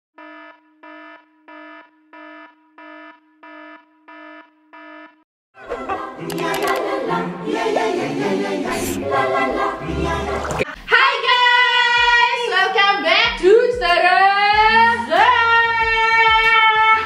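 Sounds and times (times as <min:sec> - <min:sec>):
electronic alarm beeps: 0:00.2 - 0:05.2
music with singing: 0:05.6 - 0:17.0.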